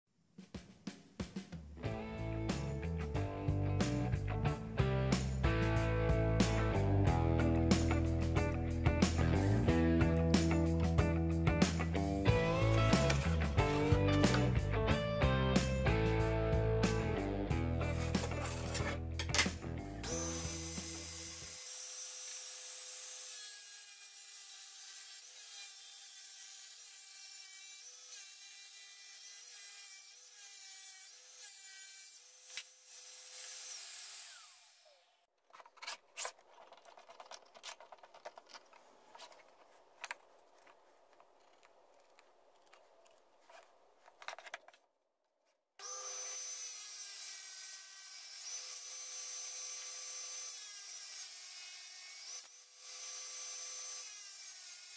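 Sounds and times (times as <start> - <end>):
table saw motor whine: 20.0 - 23.4, 32.5 - 35.2, 45.8 - 51.3.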